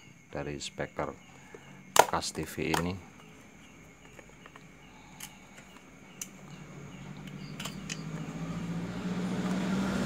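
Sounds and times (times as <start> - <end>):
light clicks of handled parts: 4.0 - 6.6, 7.2 - 8.3
low motor hum: 5.9 - 10.0.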